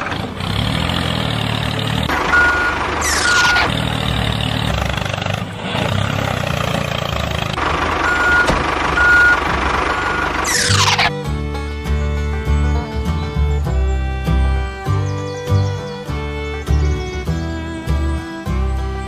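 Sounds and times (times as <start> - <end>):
diesel engine running: 0.0 - 19.0
short high reversing beeps: 2.2 - 3.7.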